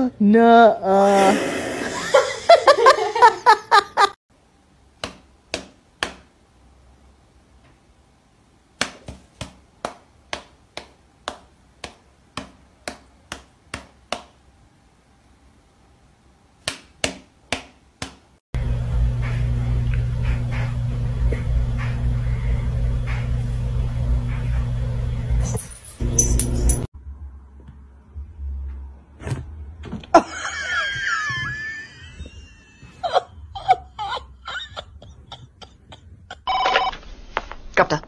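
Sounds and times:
steady low hum: 18.6s - 28.7s.

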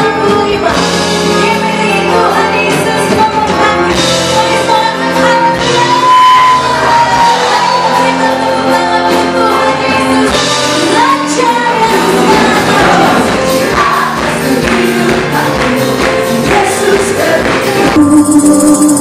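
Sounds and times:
band accompaniment with beat: 0.0s - 19.0s
women singing together: 4.8s - 19.0s.

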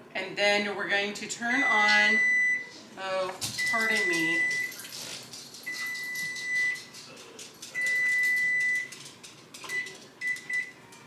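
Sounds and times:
kitchen clatter: 3.3s - 11.0s.

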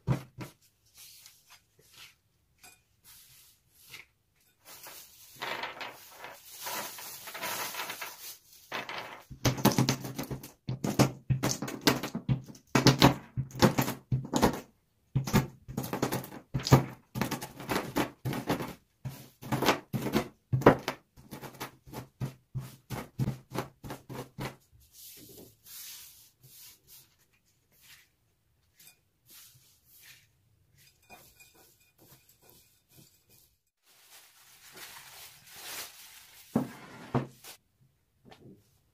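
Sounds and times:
plastic bag rustling: 4.6s - 9.2s, 33.8s - 37.6s
rolling pin crushing nuts: 8.8s - 24.6s.

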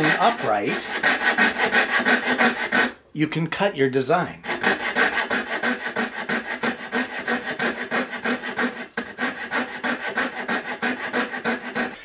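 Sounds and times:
fret saw cutting plywood: 0.0s - 3.0s, 4.5s - 12.0s.

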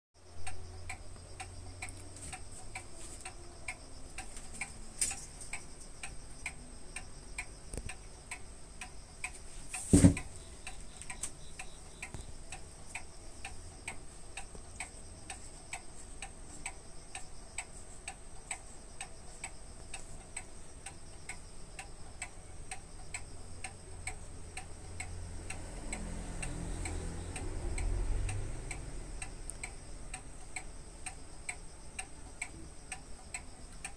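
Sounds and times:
clock ticking: 0.2s - 33.9s
sharp knock: 9.9s - 10.3s.

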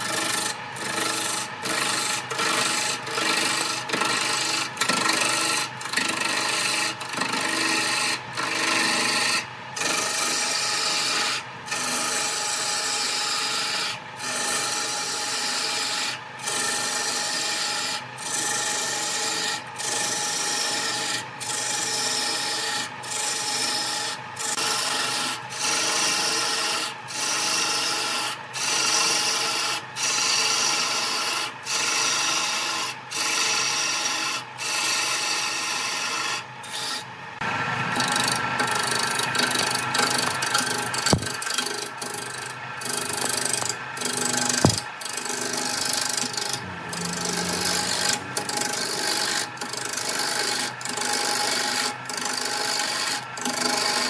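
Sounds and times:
lathe motor humming: 0.0s - 10.1s, 36.8s - 54.0s
lathe tool scraping wood: 0.0s - 54.0s.

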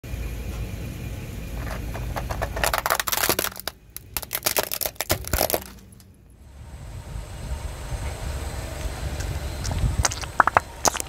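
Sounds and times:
low rumble of car: 0.0s - 11.0s
plastic toy cracking and snapping: 2.2s - 6.1s.

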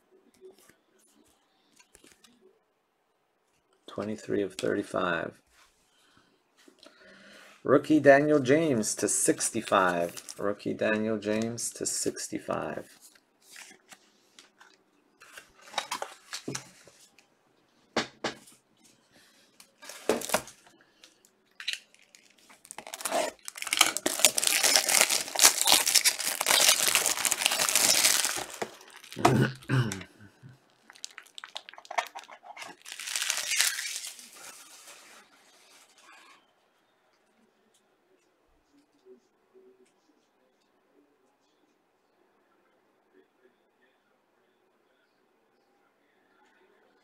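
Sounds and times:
stiff plastic crinkling: 19.8s - 29.9s, 30.7s - 36.0s.

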